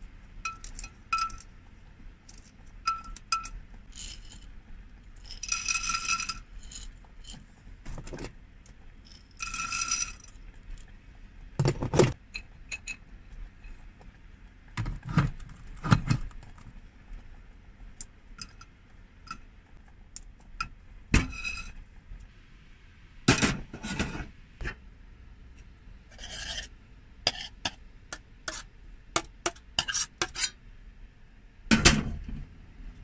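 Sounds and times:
saucepan and spoon scraping bowl: 0:26.1 - 0:28.7, 0:29.4 - 0:30.6.

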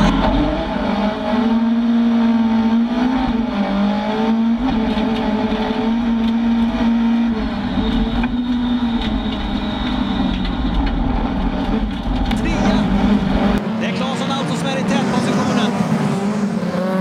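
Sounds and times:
car engine revving high: 0:00.0 - 0:10.3, 0:11.5 - 0:17.0.

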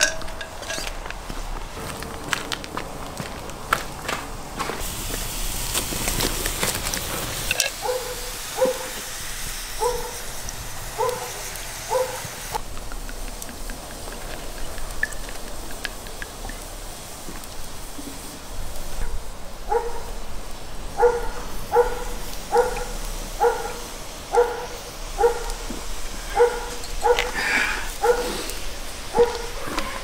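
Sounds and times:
charcoal fire crackling: 0:00.0 - 0:30.0
dog barking: 0:07.7 - 0:09.0, 0:09.8 - 0:10.3, 0:11.0 - 0:12.4, 0:19.0 - 0:20.2, 0:20.9 - 0:25.7, 0:26.3 - 0:28.5, 0:29.1 - 0:30.0.

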